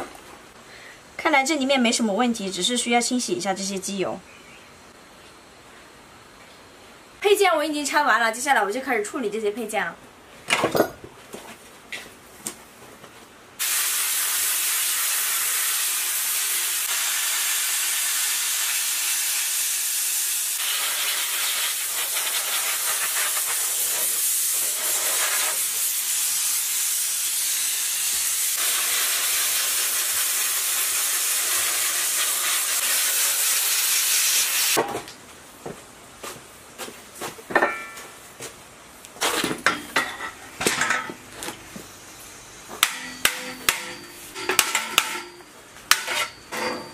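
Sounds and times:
sandblasting gun hissing: 0:13.6 - 0:34.8.

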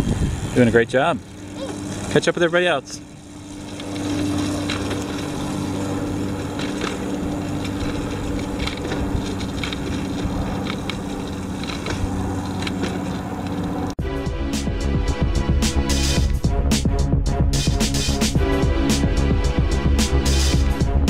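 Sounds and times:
wind noise: 0:00.0 - 0:00.9, 0:04.0 - 0:13.9
bicycle clicks and rattles: 0:00.0 - 0:14.0
bicycle tyre rumble on concrete: 0:00.0 - 0:14.0.

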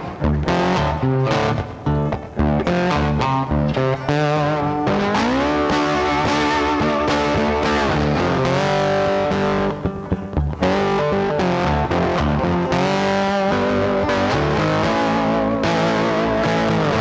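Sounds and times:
guitar background music: 0:00.0 - 0:17.0.

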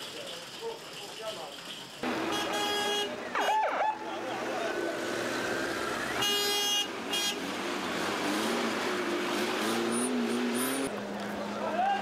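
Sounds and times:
street traffic: 0:00.0 - 0:12.0
vehicle horn: 0:02.1 - 0:03.6, 0:06.2 - 0:07.5.

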